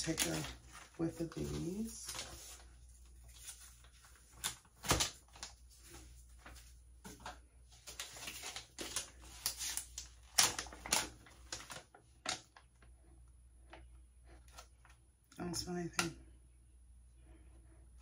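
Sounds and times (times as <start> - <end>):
plastic packet crinkling: 0.0 - 12.9.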